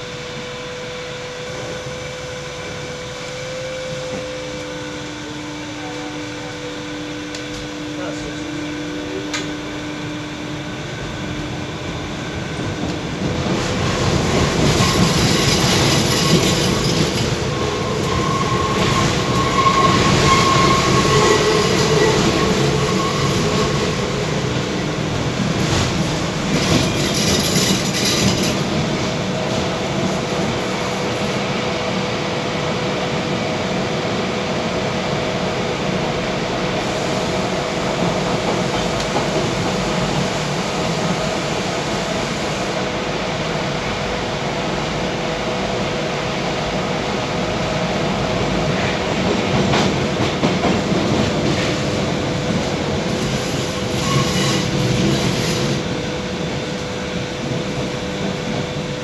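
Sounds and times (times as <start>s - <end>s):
metro train running in tunnel: 0.0s - 59.0s
high wheel squeal: 14.7s - 24.5s, 53.2s - 55.9s.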